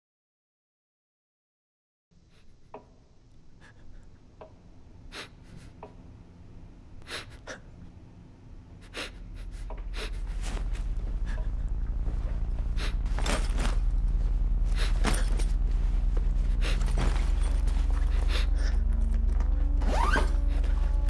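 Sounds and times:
low hum: 0:02.6 - 0:21.0
rustling: 0:10.1 - 0:21.0.

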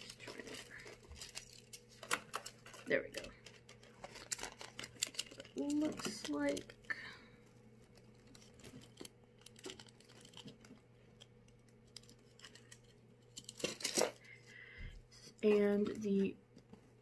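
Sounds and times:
paper rustling: 0:00.0 - 0:07.0, 0:07.8 - 0:14.2.

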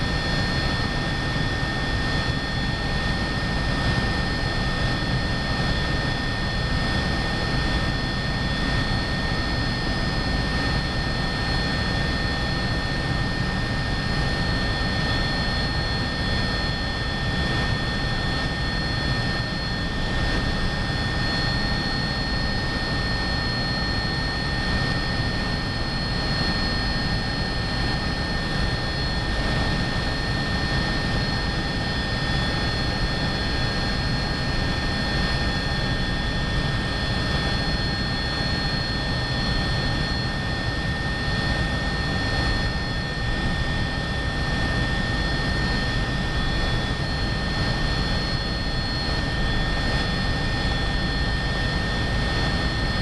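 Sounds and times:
helicopter cabin whine and rotor noise: 0:00.0 - 0:53.0.

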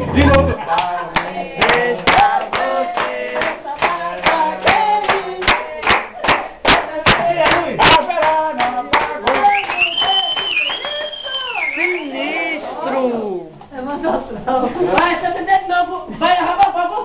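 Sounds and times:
group singing: 0:00.0 - 0:09.7
hands clapping in time: 0:08.2 - 0:11.2.

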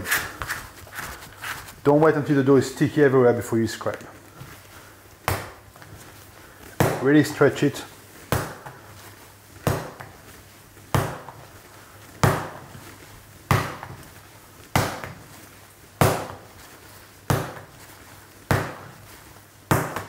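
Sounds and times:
dough slapped onto wooden bench: 0:16.0 - 0:16.5, 0:18.5 - 0:19.0, 0:19.7 - 0:20.0.

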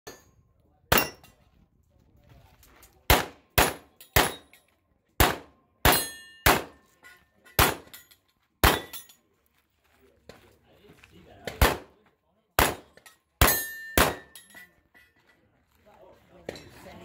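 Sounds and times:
pistol shots: 0:03.1 - 0:04.5, 0:05.2 - 0:06.8, 0:07.6 - 0:07.9, 0:08.6 - 0:09.0, 0:11.5 - 0:11.9, 0:12.6 - 0:14.4
short metallic ring: 0:13.4 - 0:15.2.

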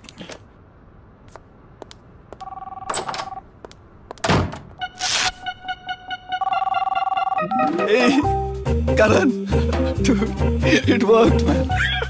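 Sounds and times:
two-tone phone ringing: 0:02.4 - 0:03.4, 0:04.8 - 0:07.9.

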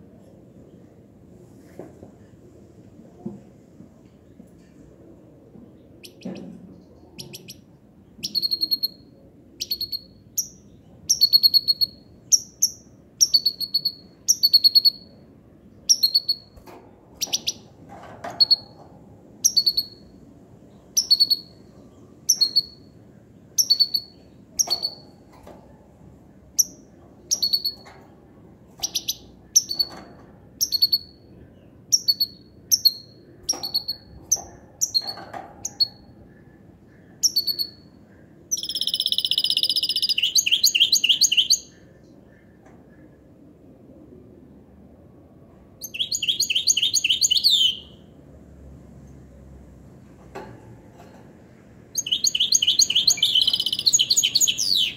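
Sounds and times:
finch singing: 0:07.2 - 0:09.0, 0:09.6 - 0:15.1, 0:17.2 - 0:17.7, 0:19.4 - 0:20.1, 0:20.9 - 0:21.6, 0:22.3 - 0:22.9, 0:23.6 - 0:25.2, 0:26.6 - 0:27.9, 0:28.8 - 0:30.0, 0:30.6 - 0:36.2, 0:37.0 - 0:37.9, 0:38.5 - 0:41.9, 0:45.8 - 0:48.0, 0:52.0 - 0:54.9.

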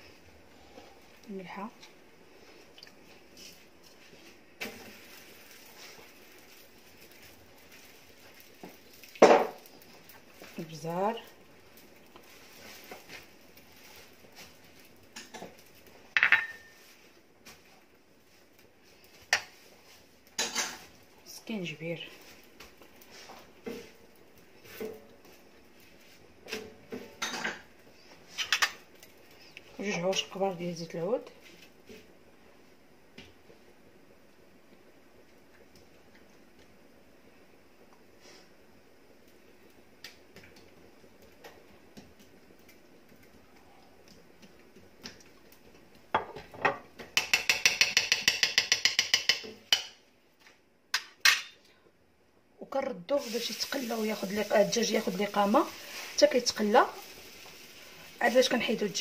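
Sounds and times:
kitchenware clinking against metal pot: 0:16.2 - 0:16.7, 0:47.2 - 0:50.0.

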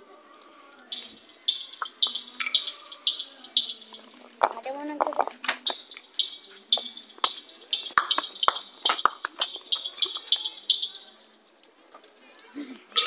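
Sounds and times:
rapid metallic jingling: 0:00.9 - 0:11.3.

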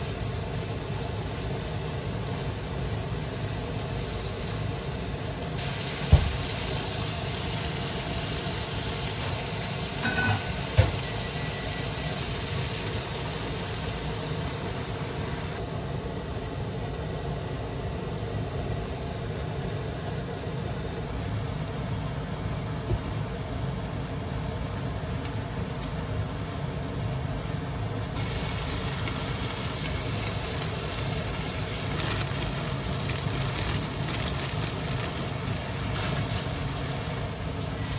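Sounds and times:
pork sizzling in a frying pan: 0:00.0 - 0:15.6, 0:28.1 - 0:37.9.

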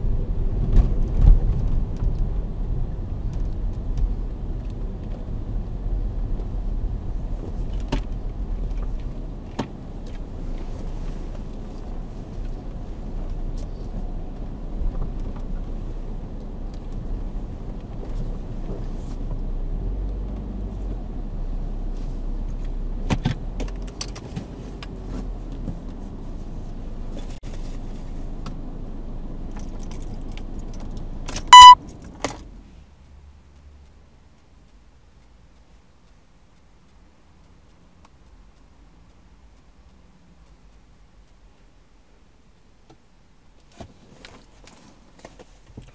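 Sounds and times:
short loud electronic beep: 0:31.5 - 0:31.8.

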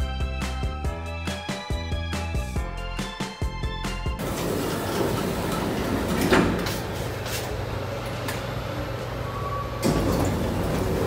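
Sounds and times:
elevator humming: 0:04.2 - 0:11.0
sliding doors opening: 0:04.2 - 0:11.0.

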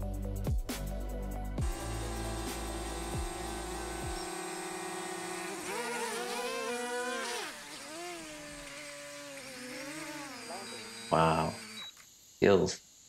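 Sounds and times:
drone propellers buzzing: 0:01.6 - 0:12.0.

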